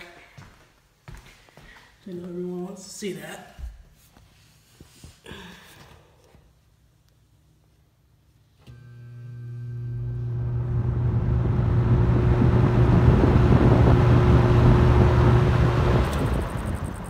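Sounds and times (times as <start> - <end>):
fan motor humming: 8.6 - 17.0
fan air rushing: 10.1 - 17.0.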